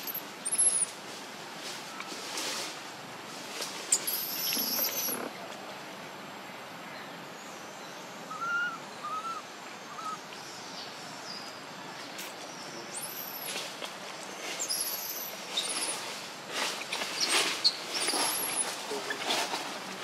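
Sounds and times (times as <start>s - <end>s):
baby monkey squealing: 0.0s - 0.9s, 3.9s - 5.3s
bird whistling: 0.0s - 0.9s, 4.0s - 5.2s, 8.3s - 10.2s
rustling: 0.0s - 5.3s, 13.4s - 20.0s
forest background: 0.0s - 20.0s.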